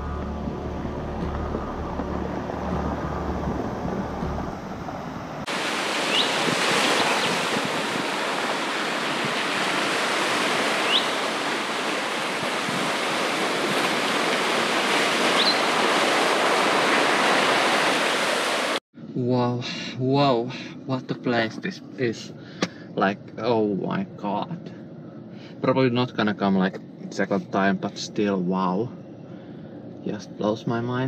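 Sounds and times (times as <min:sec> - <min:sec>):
low rumble: 0:00.0 - 0:05.5
rising chirps: 0:00.0 - 0:05.5
waves washing on pebbles: 0:05.5 - 0:18.8.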